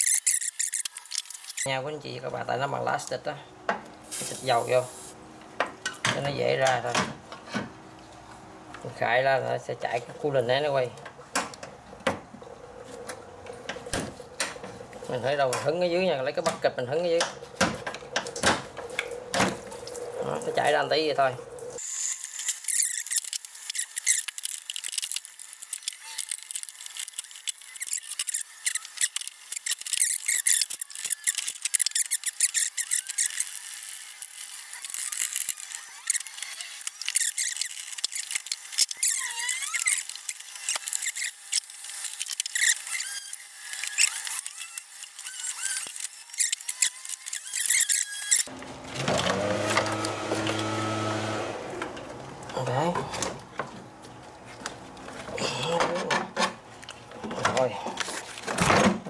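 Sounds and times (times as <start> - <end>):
plastic squeaks: 0.0 - 1.7, 22.2 - 49.7
tools clicking and scraping plastic: 22.4 - 50.6
loud steady humming: 48.5 - 53.7.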